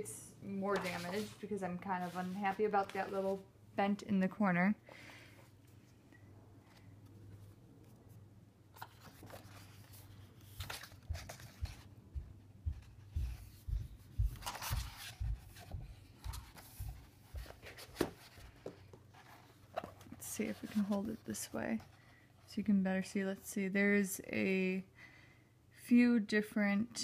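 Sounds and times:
paper pages rustling and turning: 0:00.7 - 0:03.4, 0:08.7 - 0:11.9, 0:13.3 - 0:22.1
soft low thumps: 0:11.0 - 0:18.2.

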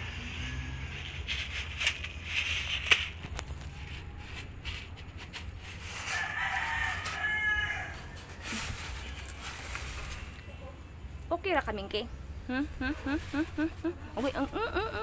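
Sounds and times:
faint rustles: 0:00.0 - 0:10.7, 0:12.6 - 0:15.0
rooster crowing: 0:06.0 - 0:08.7.

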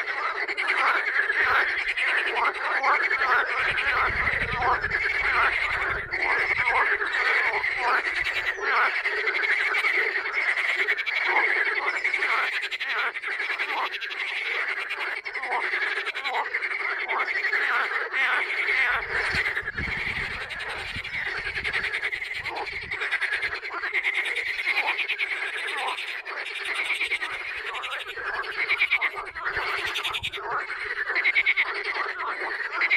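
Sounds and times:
frogs croaking and trilling: 0:00.0 - 0:32.9.

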